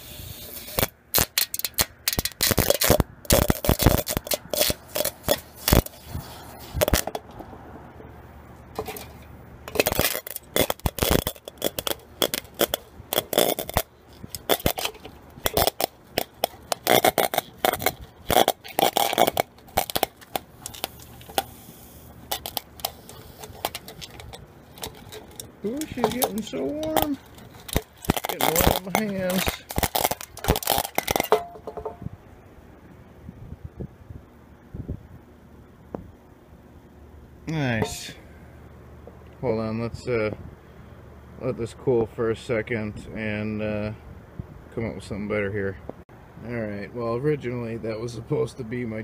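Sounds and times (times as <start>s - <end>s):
electrical arcing and sizzling: 0.0s - 7.0s, 9.7s - 31.3s
crackling and popping: 0.6s - 7.4s, 8.7s - 32.1s.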